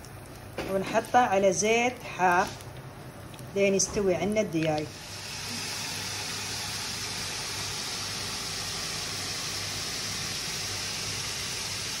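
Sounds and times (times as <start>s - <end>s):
steady hiss: 4.9s - 12.0s.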